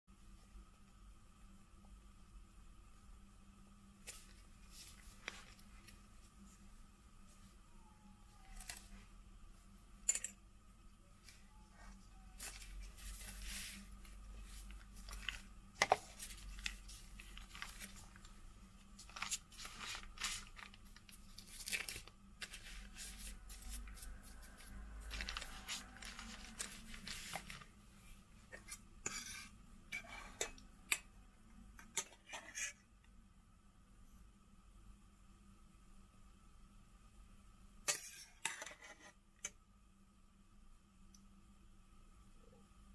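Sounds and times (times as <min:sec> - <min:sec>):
faint low hum: 0:00.1 - 0:42.9
baking parchment rustling: 0:11.2 - 0:29.6.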